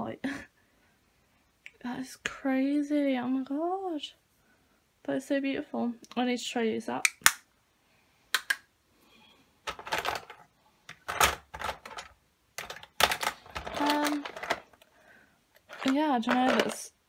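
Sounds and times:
plastic makeup items clattering: 9.7 - 14.9, 15.6 - 17.0.

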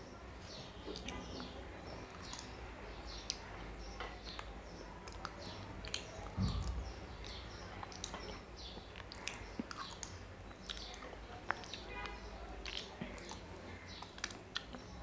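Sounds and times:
birds chirping: 0.0 - 15.0
wet eating mouth sounds: 5.0 - 14.9
dull low thump: 6.4 - 7.0.

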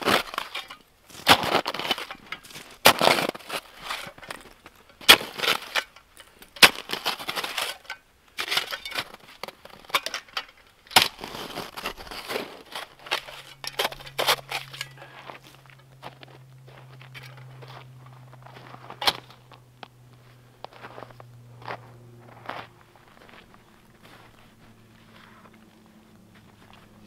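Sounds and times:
snow shovel crunching into snow: 0.0 - 6.0, 6.6 - 9.9, 11.0 - 19.5, 20.2 - 27.0.

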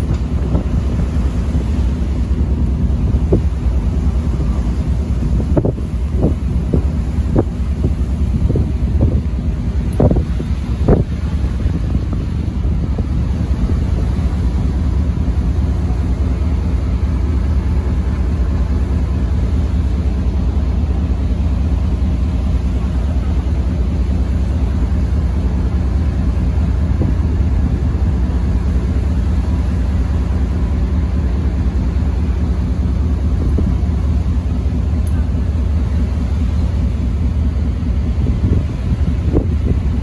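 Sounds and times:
ferry engines droning: 0.0 - 40.0.

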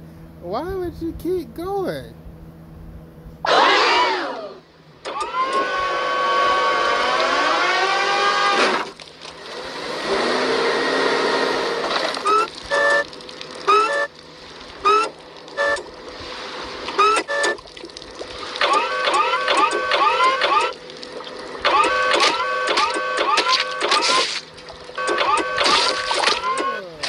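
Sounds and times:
cartoon whale screaming: 3.4 - 4.6
short rising squeals: 3.4 - 13.0.

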